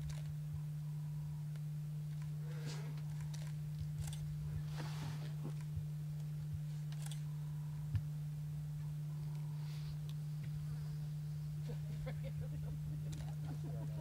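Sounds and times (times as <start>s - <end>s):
low hum: 0.0s - 14.0s
soft rustle: 2.1s - 7.3s, 8.8s - 11.8s.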